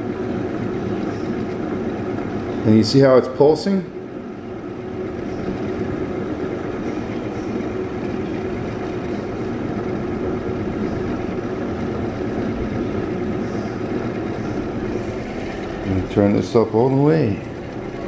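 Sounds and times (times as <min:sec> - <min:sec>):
motor whirring with low hum: 0:00.0 - 0:18.0.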